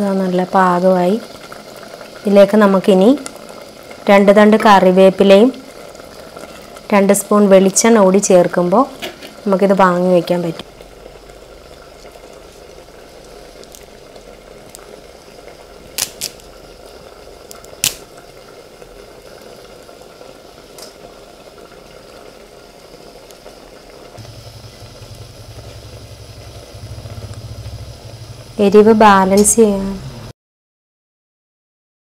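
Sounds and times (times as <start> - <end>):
food bubbling and sizzling in a pot: 0.0 - 30.3
low steady hum: 24.2 - 30.3.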